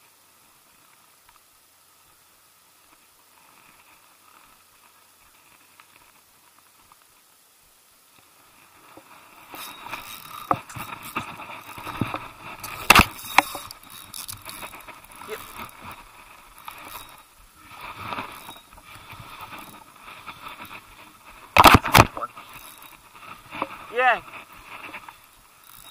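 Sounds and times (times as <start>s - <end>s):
spinning reel whirring: 9.4s - 25.9s
hands clicking and scraping gear: 9.5s - 25.9s.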